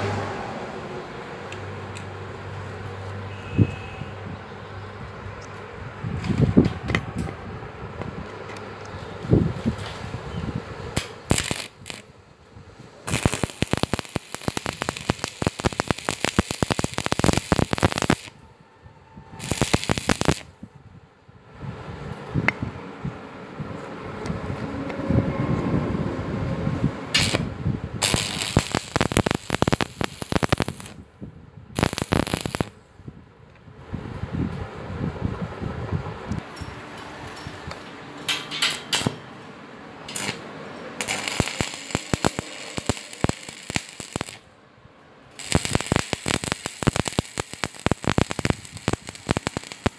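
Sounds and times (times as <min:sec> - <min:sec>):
welding arc crackling: 0:10.9 - 0:12.2, 0:13.0 - 0:18.4, 0:19.4 - 0:20.5, 0:27.1 - 0:31.0, 0:31.8 - 0:32.8, 0:40.0 - 0:44.5, 0:45.3 - 0:49.9.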